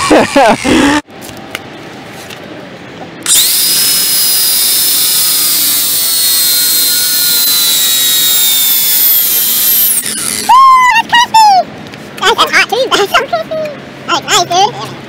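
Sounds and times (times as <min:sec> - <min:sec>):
angle grinder whining: 0:03.2 - 0:10.7.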